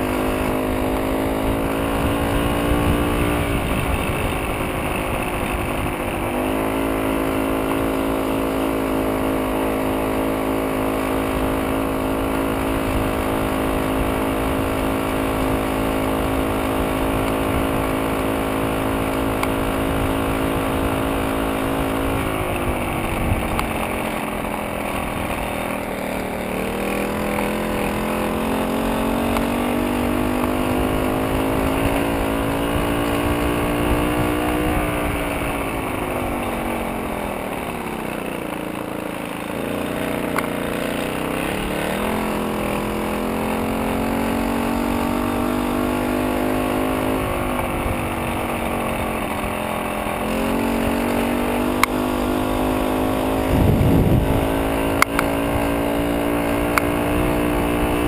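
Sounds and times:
moped two-stroke engine running: 0.0 - 58.0.

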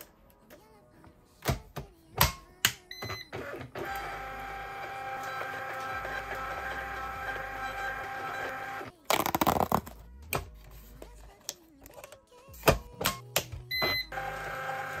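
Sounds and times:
printer whirring and whining: 3.0 - 8.9, 13.9 - 15.0.

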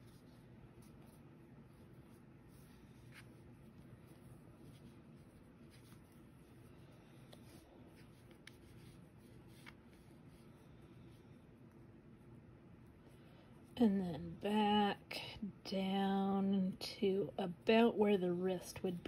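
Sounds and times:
yarn rubbing and scratching: 0.0 - 11.1.

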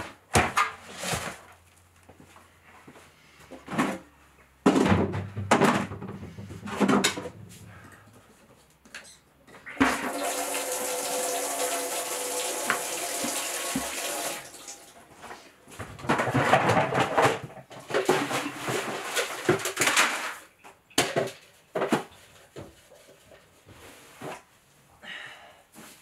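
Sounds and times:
rustling and scraping in buckets: 0.0 - 10.1, 15.0 - 24.9, 25.7 - 26.0
tap water into plastic bucket: 9.8 - 14.4.

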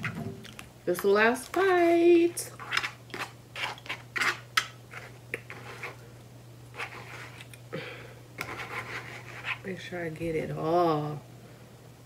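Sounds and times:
utensil scraping plastic bowl: 1.5 - 6.0, 6.7 - 7.6, 8.4 - 9.7.

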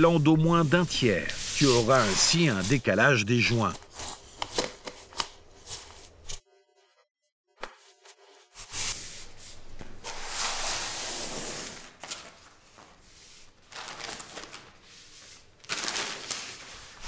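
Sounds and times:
vinyl plank rustling and scraping: 0.6 - 6.4.

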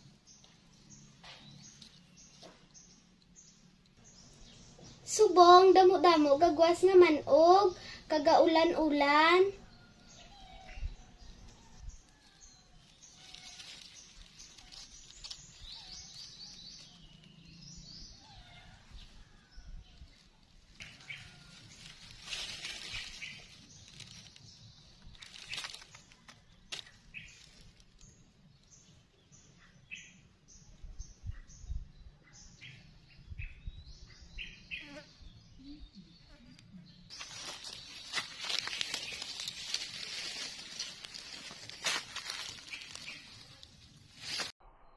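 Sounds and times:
dry leaves rustling: 0.0 - 3.0, 11.7 - 17.6, 18.2 - 28.4, 37.1 - 44.5
birds chirping: 0.0 - 44.5.

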